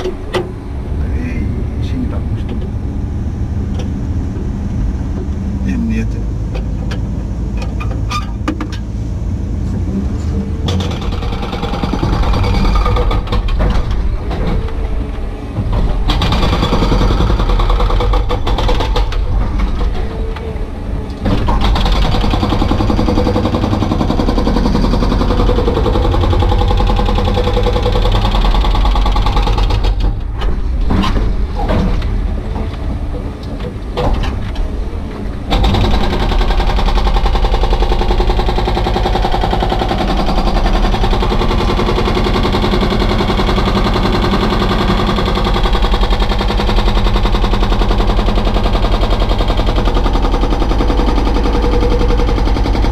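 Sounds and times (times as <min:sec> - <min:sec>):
diesel engine running: 0:00.0 - 0:52.9
hydraulic breaker hammering rock: 0:10.6 - 0:20.4, 0:21.2 - 0:33.3, 0:35.5 - 0:52.9.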